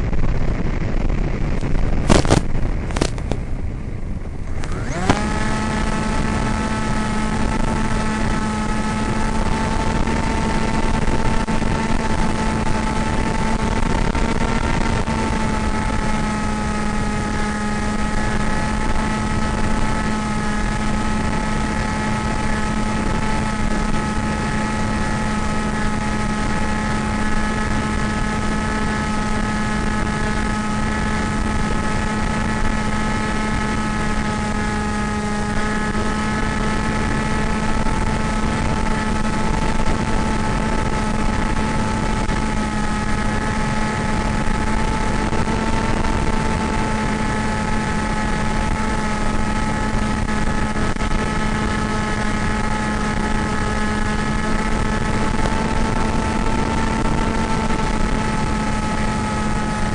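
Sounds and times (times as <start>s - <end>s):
model plane motor droning: 0.0s - 59.9s.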